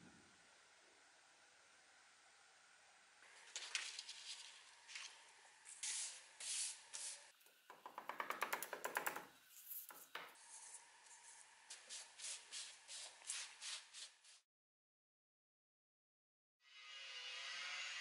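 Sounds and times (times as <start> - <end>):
paper rubbing and rustling: 3.3 - 7.2.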